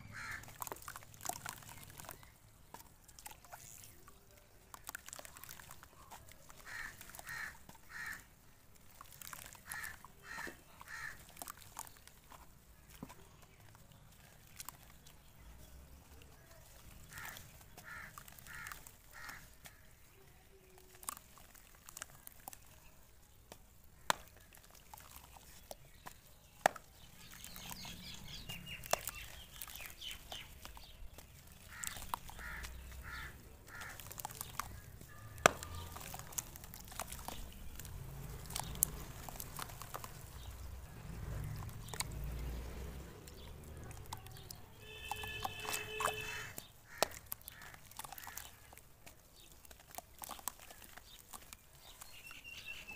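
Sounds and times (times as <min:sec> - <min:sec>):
birds calling: 0:00.0 - 0:52.9
dry dirt crumbling and snapping: 0:00.0 - 0:52.9
small water splashes: 0:00.0 - 0:52.9.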